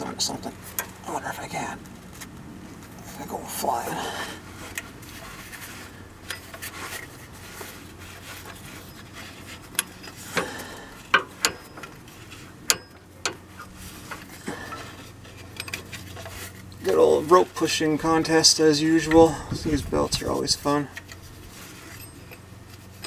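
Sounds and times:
belt rubbing over pulleys: 3.1s - 23.0s
metal clicks and knocks: 11.1s - 12.0s.

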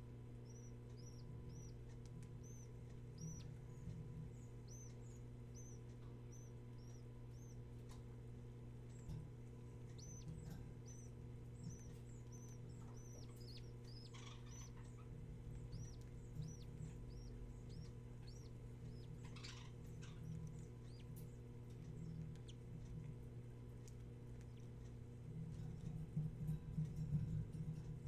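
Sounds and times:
low electrical hum: 0.0s - 28.0s
chicks begging cheeps: 0.4s - 7.7s, 9.8s - 22.7s.

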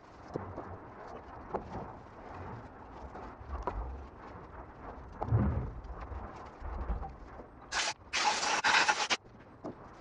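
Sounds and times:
rag wiping metal housing: 7.7s - 9.2s.

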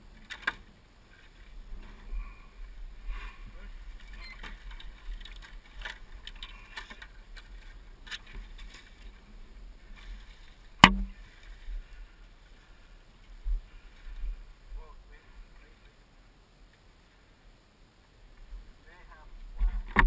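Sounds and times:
riding gear rustling: 0.0s - 16.0s
sharp loud knock: 10.8s - 11.2s.

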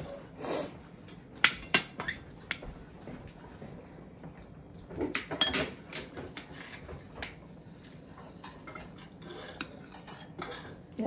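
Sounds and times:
fork scraping ceramic bowl: 8.4s - 10.8s.

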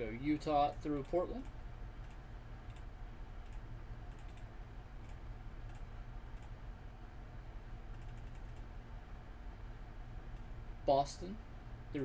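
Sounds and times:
steady low hum: 0.0s - 12.0s
computer mouse and keyboard clicks: 0.8s - 6.6s, 7.9s - 8.7s.

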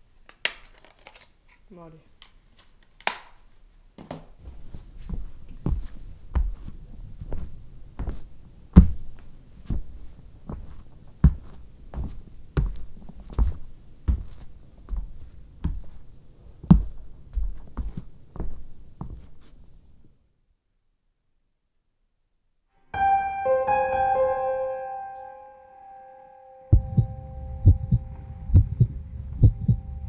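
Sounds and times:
dull heavy thuds: 4.4s - 16.0s, 16.6s - 19.4s, 26.8s - 27.1s.

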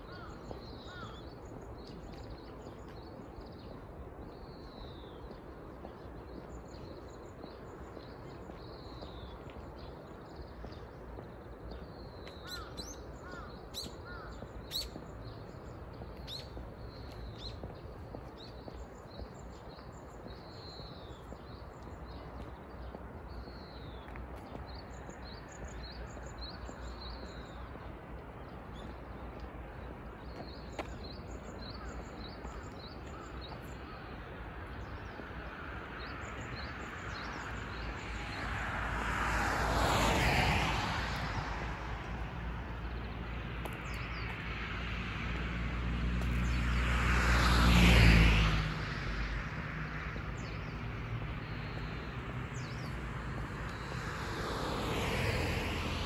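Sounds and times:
small birds chirping: 0.0s - 35.2s
vehicles passing by: 0.0s - 56.0s.

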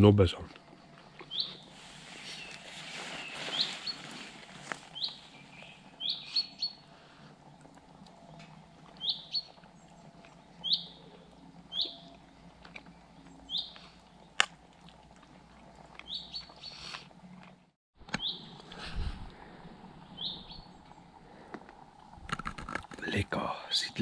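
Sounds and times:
songbird chirping: 0.5s - 7.0s, 8.0s - 14.4s, 16.0s - 17.0s, 19.9s - 21.2s.

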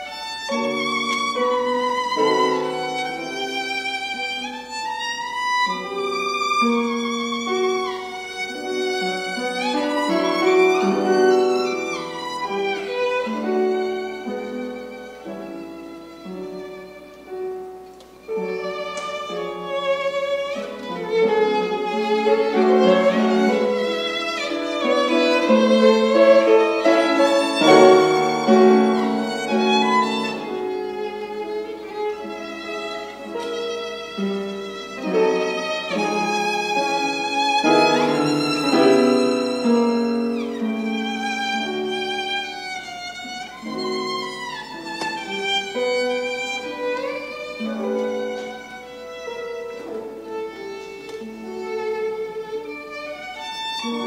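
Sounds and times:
solo violin melody: 0.0s - 54.0s.

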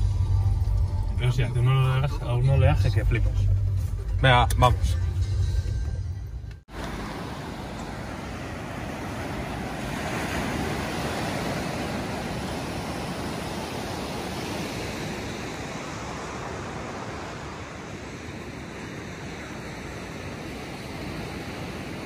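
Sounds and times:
surf breaking on sandy beach: 6.7s - 22.0s.

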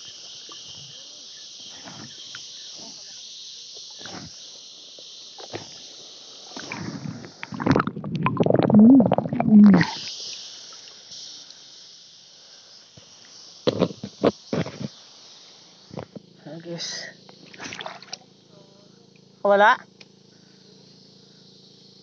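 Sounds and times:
steady high hiss: 0.0s - 17.5s
water sloshing and gurgling: 6.5s - 10.1s, 17.4s - 18.2s
muffled underwater crackles: 6.5s - 10.2s.

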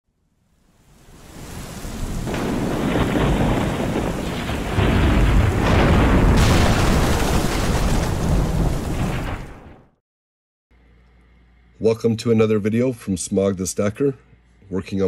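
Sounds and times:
steady rain hiss: 0.3s - 7.6s
deep rumbling thunder boom: 2.0s - 10.0s.

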